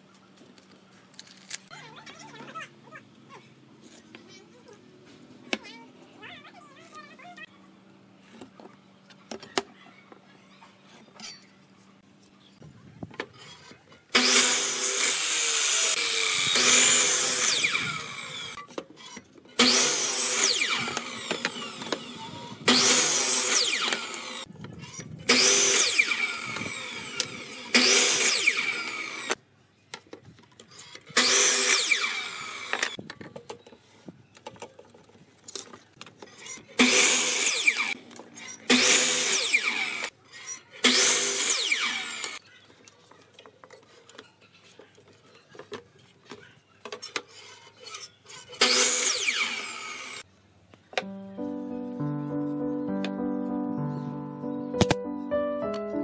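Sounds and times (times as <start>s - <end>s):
miter saw cutting wood: 14.1s - 18.6s, 19.6s - 24.5s, 25.3s - 29.4s, 31.1s - 33.0s, 36.4s - 42.4s, 48.4s - 50.2s.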